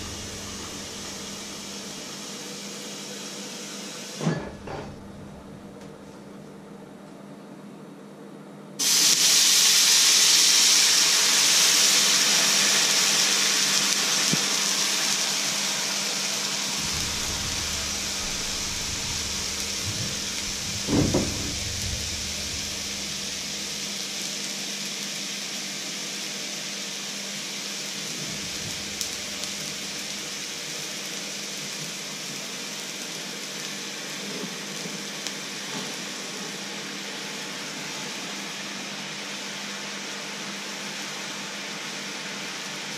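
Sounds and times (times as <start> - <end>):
liquid hissing in hot pan: 0.0 - 4.2, 8.8 - 40.0
brief knock: 18.2 - 22.3.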